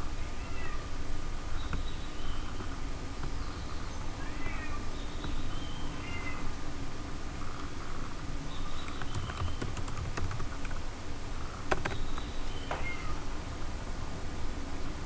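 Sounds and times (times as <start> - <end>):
high animal calls: 3.5 - 6.5, 12.6 - 13.3
sharp clicks: 8.8 - 10.8, 11.7 - 12.9.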